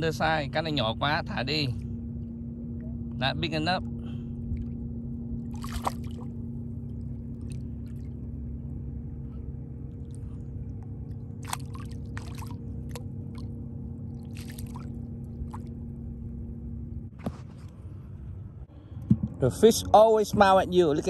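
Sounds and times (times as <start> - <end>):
steady low hum: 0.0 - 21.0
fish splashing at water surface: 5.5 - 6.3, 11.4 - 13.5, 14.1 - 15.7.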